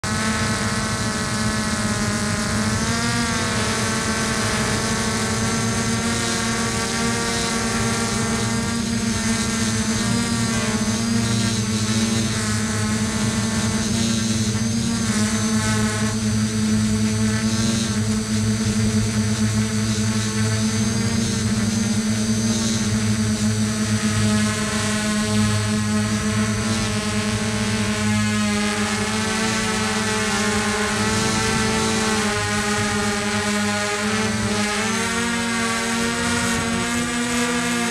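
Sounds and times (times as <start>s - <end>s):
model aircraft motor buzzing: 0.0s - 37.9s.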